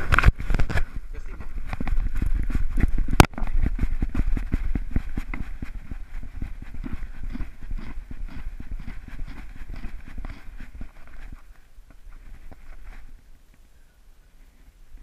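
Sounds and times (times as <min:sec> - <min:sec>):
dog footfalls thumping camera: 0:00.0 - 0:09.0.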